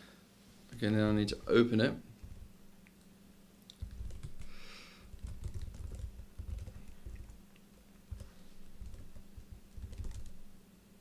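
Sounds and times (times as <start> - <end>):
laptop keyboard typing: 2.2 - 2.6, 3.7 - 10.6.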